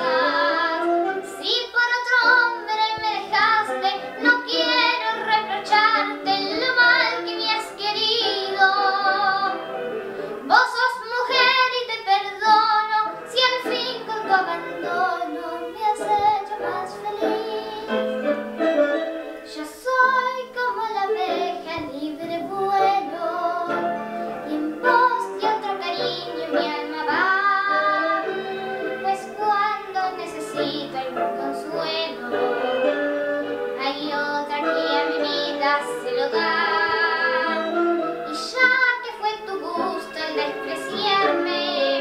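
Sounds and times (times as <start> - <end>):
girl singing slow song: 0.0 - 9.7, 10.3 - 18.2, 19.4 - 33.0, 33.8 - 42.0.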